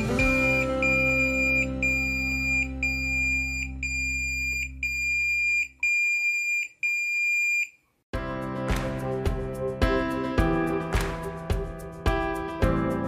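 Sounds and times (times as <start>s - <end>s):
low background music chord: 0.0s - 4.0s
alarm beeping: 0.2s - 7.8s.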